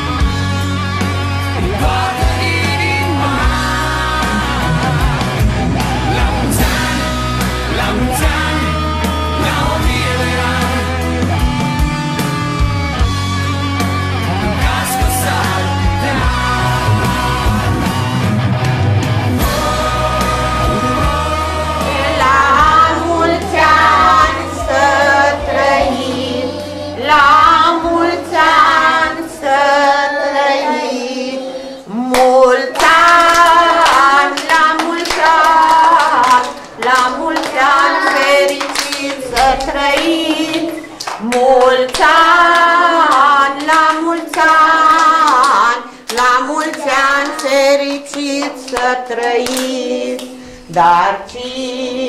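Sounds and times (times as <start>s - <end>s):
music track bass: 0.0s - 30.0s
children singing in chorus: 19.4s - 52.0s
children clapping: 32.1s - 50.9s.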